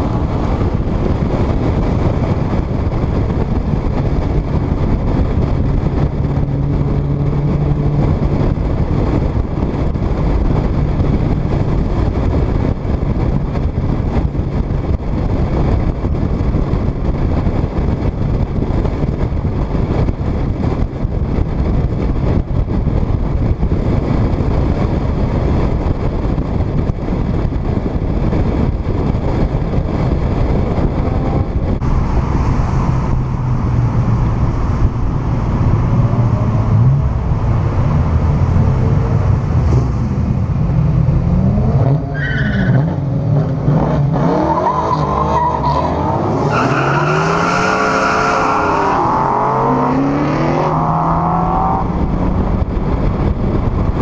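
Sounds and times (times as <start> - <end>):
wind and road noise: 0.0 - 54.0
low engine drone: 19.1 - 44.3.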